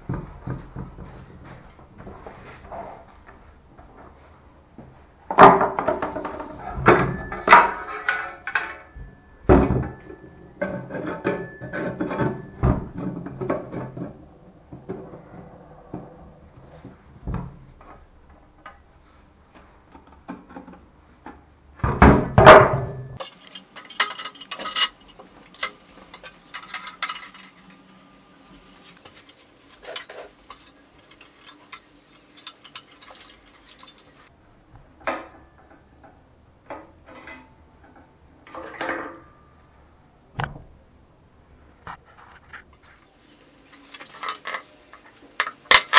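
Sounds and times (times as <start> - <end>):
metal parts clinking and knocking: 6.8 - 13.9, 23.2 - 28.0, 28.6 - 34.3, 43.7 - 45.9.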